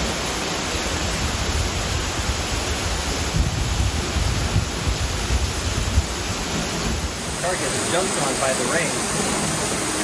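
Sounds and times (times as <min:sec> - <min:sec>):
heavy rain hiss: 0:00.0 - 0:10.0
water pouring off roof: 0:00.0 - 0:10.0.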